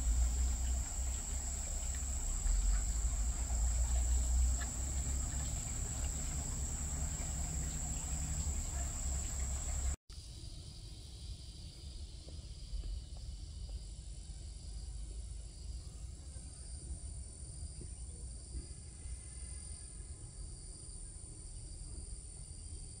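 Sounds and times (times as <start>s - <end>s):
low rumble: 0.0s - 10.0s
insects trilling: 0.0s - 13.9s.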